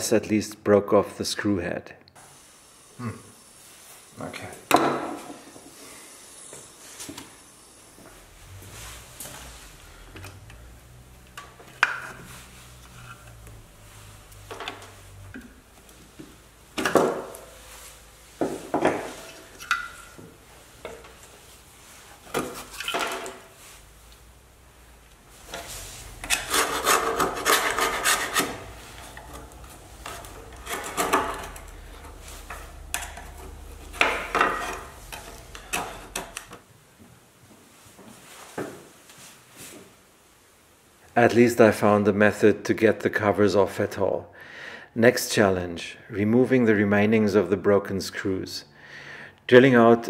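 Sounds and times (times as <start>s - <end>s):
metal tool scraping plastic: 25.5s - 36.6s.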